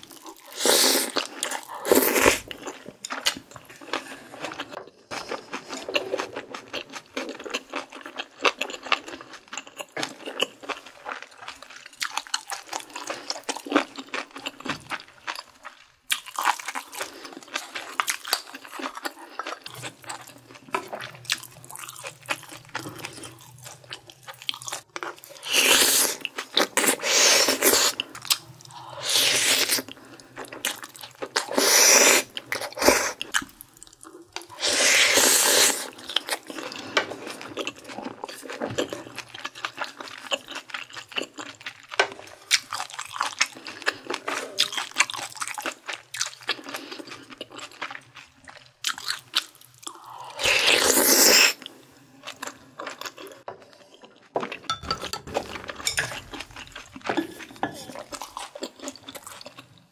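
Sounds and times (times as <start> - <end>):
loud noodle slurps: 34.6 - 35.9
wet chewing and mouth clicks: 35.7 - 59.9
spoon and chopsticks scraping plate: 54.7 - 58.0.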